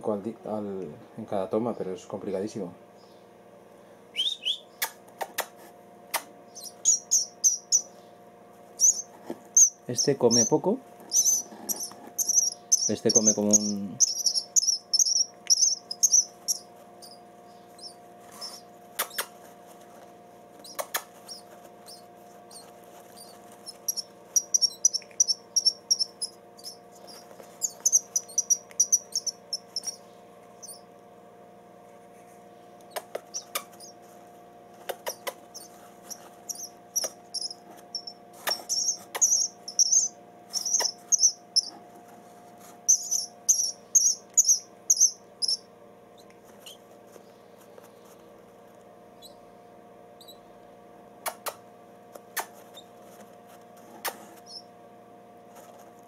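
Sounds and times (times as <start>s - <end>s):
faint steady hum: 0.0s - 56.0s
nestlings chirping: 4.1s - 5.0s, 6.1s - 19.5s, 20.6s - 30.9s, 32.8s - 34.2s, 34.8s - 41.8s, 42.7s - 48.1s, 49.1s - 49.6s, 50.2s - 50.5s, 54.4s - 54.7s.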